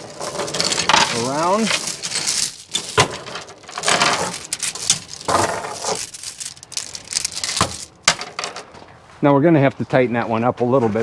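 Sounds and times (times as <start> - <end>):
chain rattling on wooden deck: 0.0 - 8.7.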